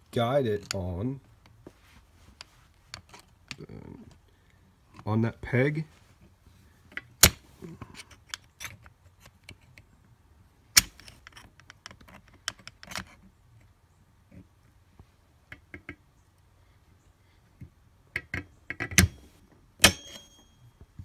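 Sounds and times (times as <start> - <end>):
metal clicks and scrapes: 10.8 - 13.7.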